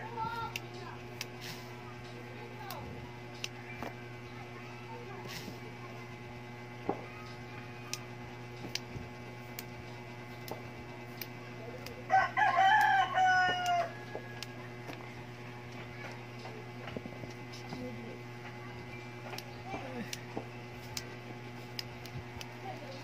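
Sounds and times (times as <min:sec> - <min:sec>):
rooster crowing: 0:12.1 - 0:14.7.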